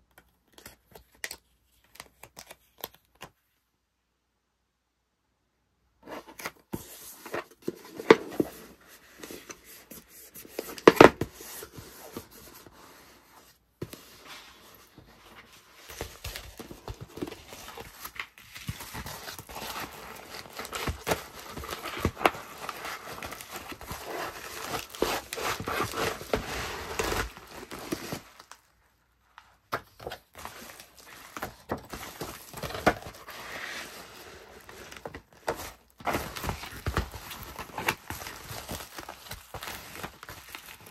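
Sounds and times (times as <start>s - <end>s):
cardboard box handled: 6.1s - 28.6s, 29.7s - 40.9s
plastic mailer crinkling: 15.9s - 28.7s, 29.8s - 40.9s.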